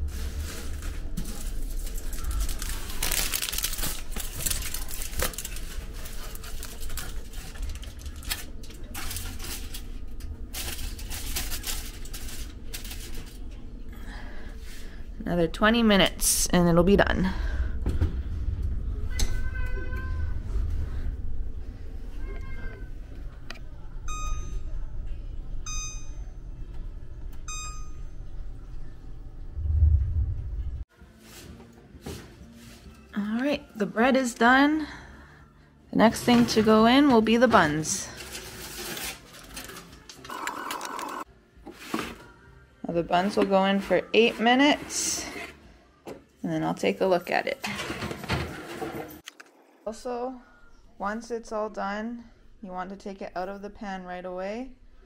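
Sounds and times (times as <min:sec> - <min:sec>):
aluminium foil crinkling: 0:00.1 - 0:13.6, 0:38.0 - 0:41.0
low rumble: 0:16.0 - 0:27.4, 0:28.1 - 0:30.9.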